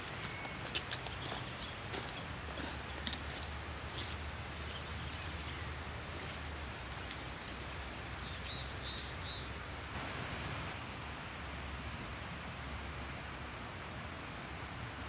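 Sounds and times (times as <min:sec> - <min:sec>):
footsteps crunching on gravel: 0:00.0 - 0:09.1
steady outdoor hiss: 0:00.0 - 0:15.0.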